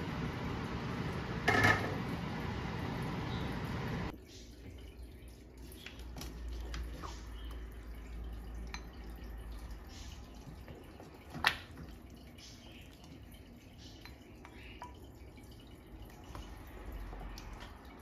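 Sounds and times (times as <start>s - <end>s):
stew slopping and dripping: 4.1s - 18.0s.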